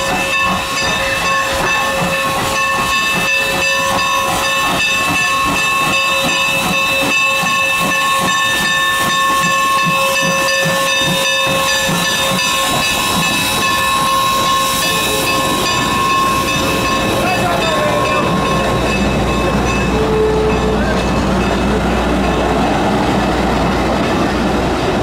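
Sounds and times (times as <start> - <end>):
loud hiss of steam: 0.1 - 18.9.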